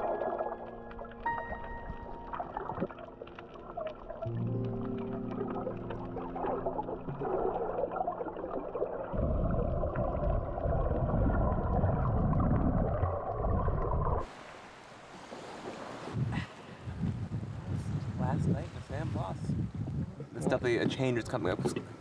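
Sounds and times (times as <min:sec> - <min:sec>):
underwater low tones: 0:00.0 - 0:14.3
muffled underwater rumbling: 0:01.9 - 0:14.3
wind noise on microphone: 0:16.0 - 0:22.0.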